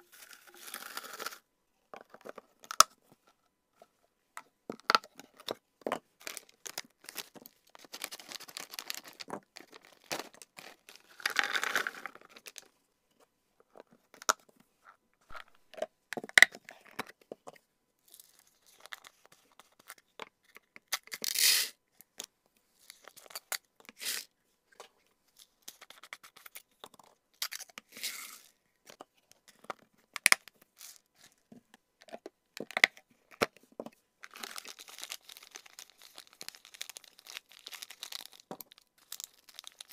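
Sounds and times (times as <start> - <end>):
snack packets crinkling: 6.2 - 12.7, 34.2 - 39.9
dried snacks pouring into boxes: 34.3 - 39.9.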